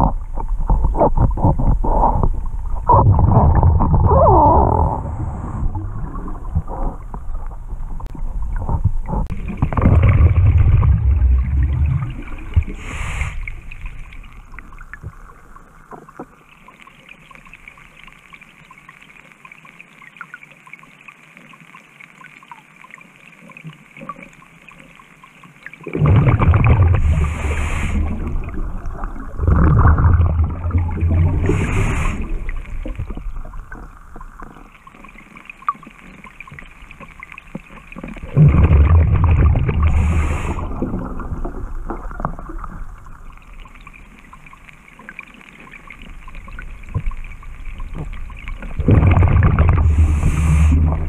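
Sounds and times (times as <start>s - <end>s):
bubbling exhaled air underwater: 0.0s - 16.5s, 25.8s - 51.0s
faint steady hiss: 10.7s - 39.0s, 39.6s - 49.0s.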